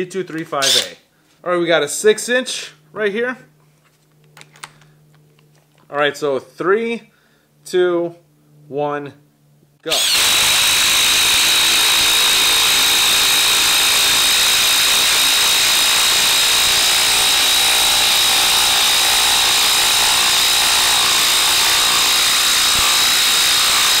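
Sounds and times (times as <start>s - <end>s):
impact driver hammering: 0.6s - 0.9s, 9.9s - 24.0s.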